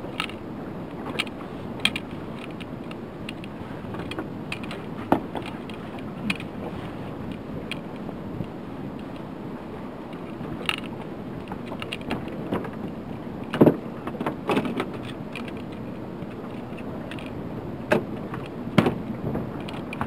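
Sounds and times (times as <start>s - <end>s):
fishing gear knocking in boat: 17.9s - 20.0s.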